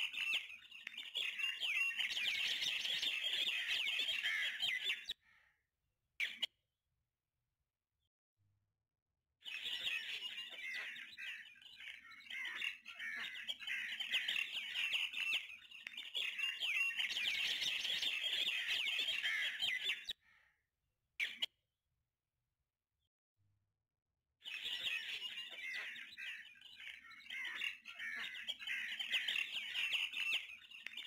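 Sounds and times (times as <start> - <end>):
small birds chirping: 0.0 - 5.6, 6.2 - 6.6, 9.4 - 20.6, 21.2 - 21.6, 24.4 - 31.0.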